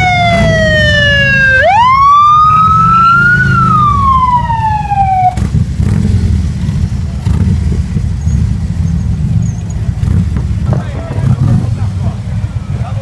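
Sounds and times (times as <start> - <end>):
motorcycle siren winding: 0.0 - 5.4
motorcycle engines rumbling: 0.0 - 13.0.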